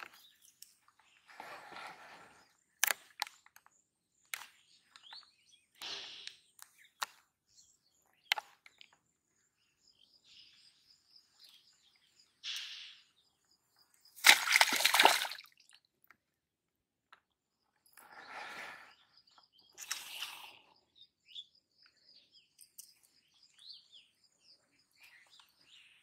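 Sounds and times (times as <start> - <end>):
fish splashing in water: 14.2 - 15.6
small water splashes: 14.2 - 15.9.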